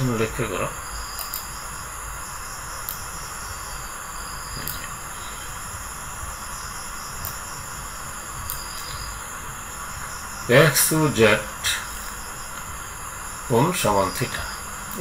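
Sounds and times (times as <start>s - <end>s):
microphone hiss: 0.0s - 15.0s
faint short clicks: 1.2s - 1.5s.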